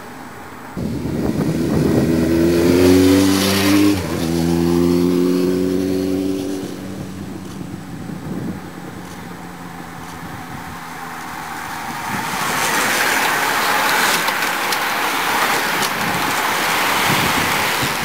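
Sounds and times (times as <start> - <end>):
tyres hissing on tarmac: 7.3 - 18.0.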